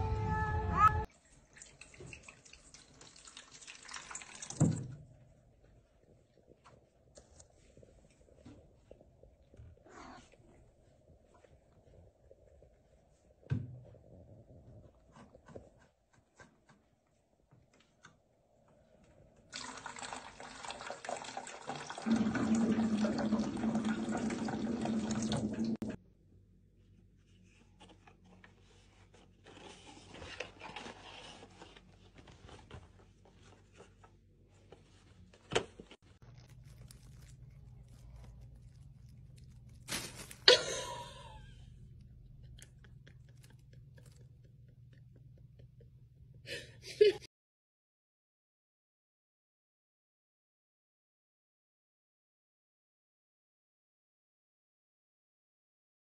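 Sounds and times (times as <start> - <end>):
water dispenser stream: 1.2 - 5.1, 19.5 - 26.0.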